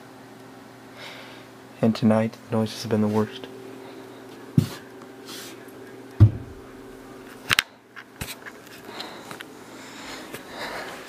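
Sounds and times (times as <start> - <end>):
steady low hum: 0.0 - 11.0
dull heavy thump: 6.2 - 6.6.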